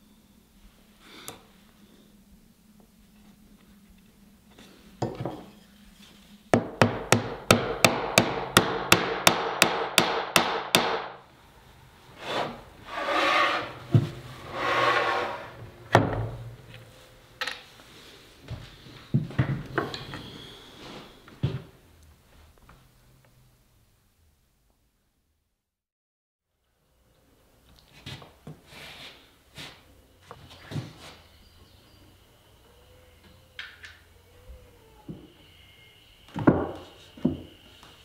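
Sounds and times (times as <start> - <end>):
board rubbing on bench: 12.2 - 15.8.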